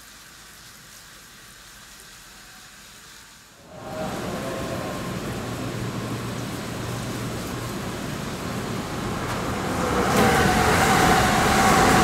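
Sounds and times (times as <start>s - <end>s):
water sprinklers hissing: 0.0s - 12.0s
high-speed train approaching: 3.6s - 12.0s
train humming: 3.6s - 12.0s.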